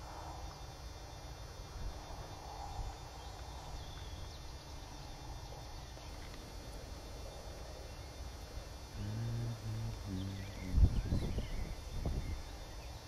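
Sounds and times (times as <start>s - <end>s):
faint bird calls: 8.9s - 13.0s.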